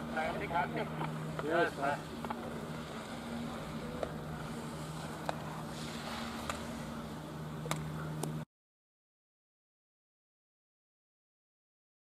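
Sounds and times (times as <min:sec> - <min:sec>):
low hum: 0:00.0 - 0:08.5
skis carving on snow: 0:01.2 - 0:07.2.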